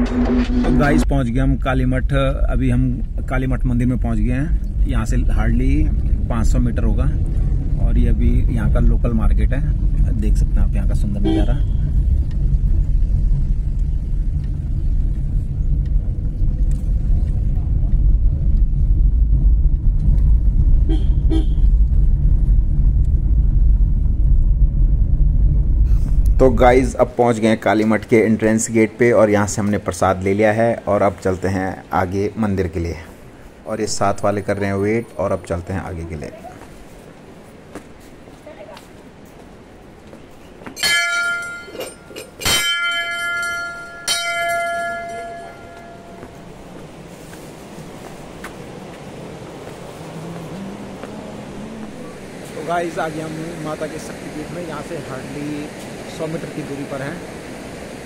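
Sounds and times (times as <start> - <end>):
moving vehicle rumble: 0.0 - 58.0
vehicle horn beeps: 11.2 - 12.0, 20.9 - 21.7
brass bells ringing: 40.8 - 46.5.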